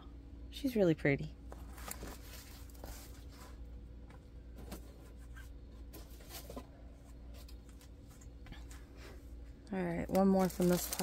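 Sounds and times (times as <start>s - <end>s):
low steady hum: 0.0s - 11.0s
packaging rustling: 1.6s - 3.6s, 10.0s - 11.0s.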